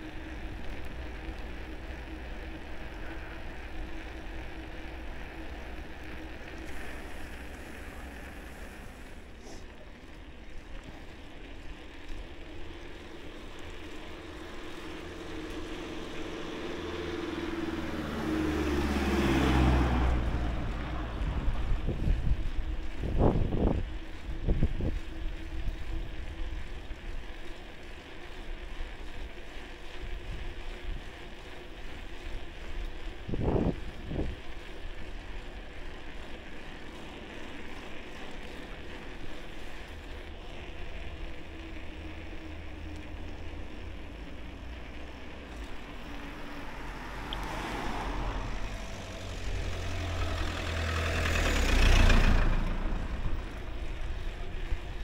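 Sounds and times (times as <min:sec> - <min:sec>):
wind and road rumble: 0:00.0 - 0:55.0
vehicle passing: 0:10.8 - 0:28.4, 0:31.5 - 0:55.0.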